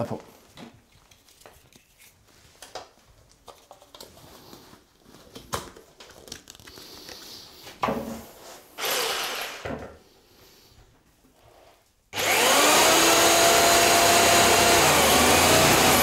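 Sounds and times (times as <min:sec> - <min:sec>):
handling rustling and clicks: 0:00.5 - 0:07.3.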